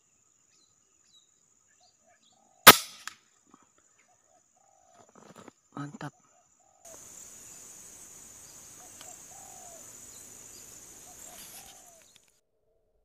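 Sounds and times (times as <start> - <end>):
dove cooing: 6.9 - 12.1
insects shrilling: 6.9 - 12.3.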